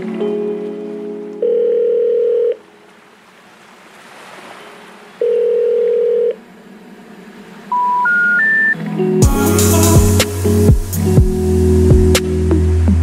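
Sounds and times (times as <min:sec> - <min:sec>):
held synth tone: 0:07.7 - 0:12.6.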